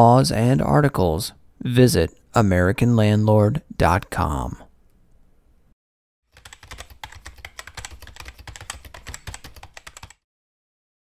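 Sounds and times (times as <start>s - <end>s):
typing on computer keyboard: 6.3s - 10.2s.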